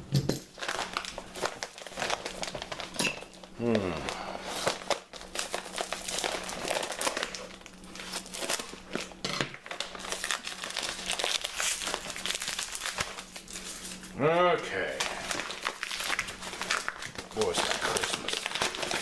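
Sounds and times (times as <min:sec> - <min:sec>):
wrapping paper crinkling: 0:00.5 - 0:19.0.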